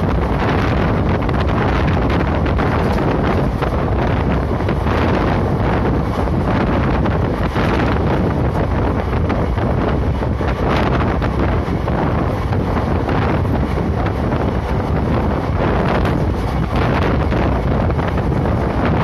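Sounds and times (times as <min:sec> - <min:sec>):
train running noise: 0:00.0 - 0:19.0
wind buffeting microphone: 0:00.0 - 0:19.0.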